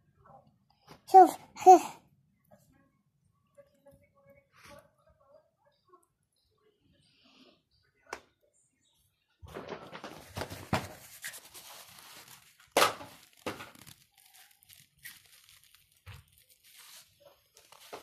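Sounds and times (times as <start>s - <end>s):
crinkling rustling: 9.5s - 18.0s.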